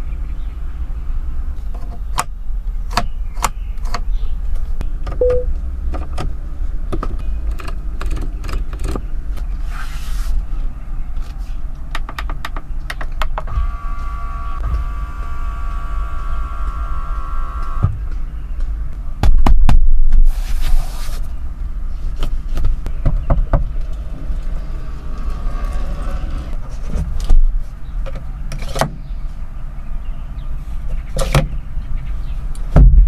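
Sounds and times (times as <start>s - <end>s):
steady low hum: 13.4s - 19.2s
electric motor whine: 13.5s - 17.9s.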